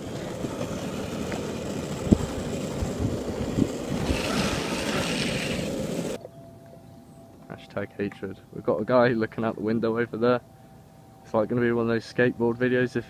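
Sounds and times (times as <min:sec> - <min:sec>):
hand sliding on road: 0:00.0 - 0:06.2
longboard wheels rumbling on asphalt: 0:00.0 - 0:06.2
wind on microphone: 0:01.6 - 0:06.2.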